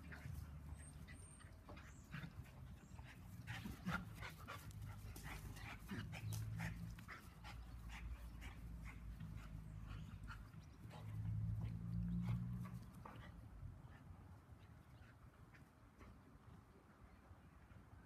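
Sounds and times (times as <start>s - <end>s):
paws scuffing and clicking: 0.0s - 13.5s
dog panting: 0.0s - 14.2s.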